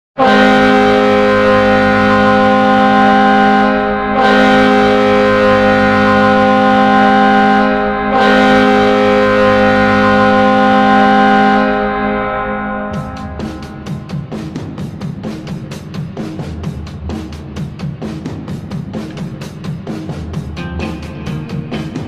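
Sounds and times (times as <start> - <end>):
goal horn blasts: 0.2 - 14.1.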